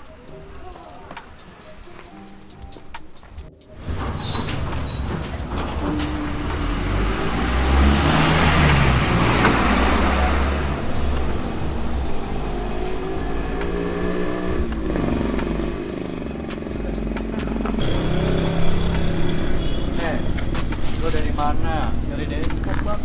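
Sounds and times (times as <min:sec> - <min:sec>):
vehicle passing: 0:03.8 - 0:23.0.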